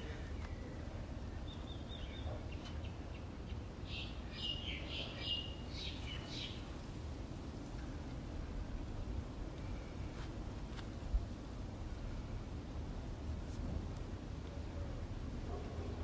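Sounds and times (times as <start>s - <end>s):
birds chirping: 0.0s - 6.8s
low background rumble: 5.4s - 16.0s.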